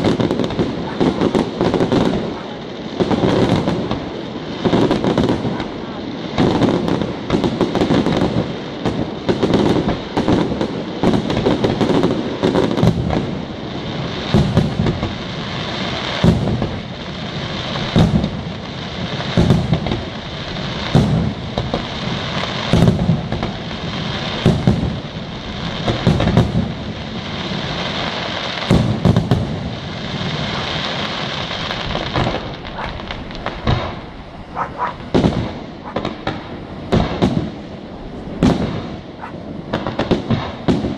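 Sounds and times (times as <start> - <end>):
fireworks hiss and crackle: 0.0 - 40.9
firework shells bursting: 28.6 - 40.9.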